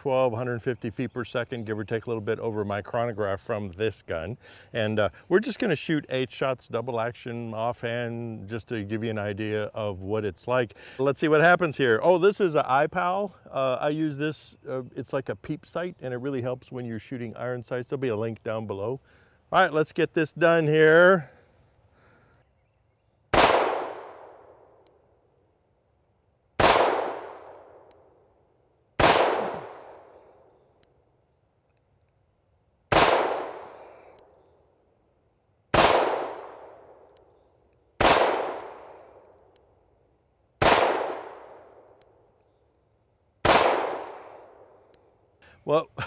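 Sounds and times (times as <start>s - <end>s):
revolver gunshots: 23.3s - 24.6s, 26.6s - 27.8s, 29.0s - 30.2s, 32.9s - 34.0s, 35.7s - 37.0s, 38.0s - 39.1s, 40.6s - 41.8s, 43.4s - 44.6s.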